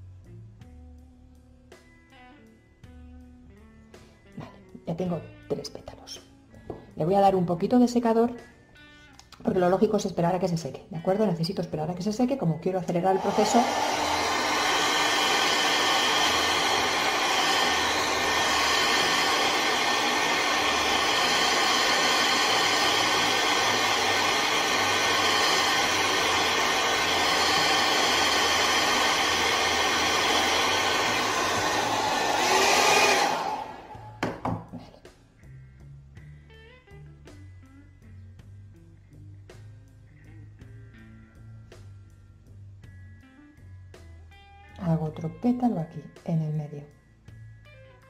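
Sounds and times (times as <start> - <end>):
hair dryer blowing: 12.9 - 34.7.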